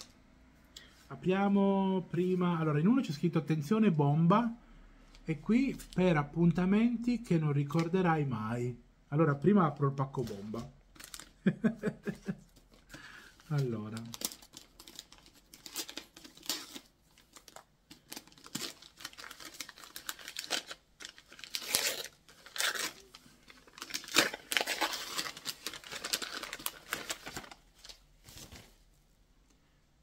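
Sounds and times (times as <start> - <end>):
wrapping paper tearing and crumpling: 10.2 - 11.4, 13.0 - 28.7.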